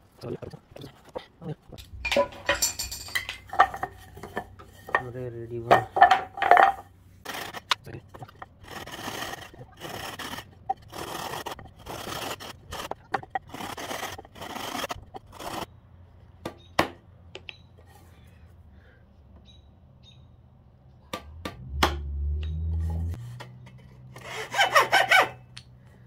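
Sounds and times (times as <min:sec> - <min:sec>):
hand saw cutting wood: 0:07.2 - 0:15.7, 0:24.1 - 0:25.4
sharp wooden knocks: 0:21.2 - 0:22.1.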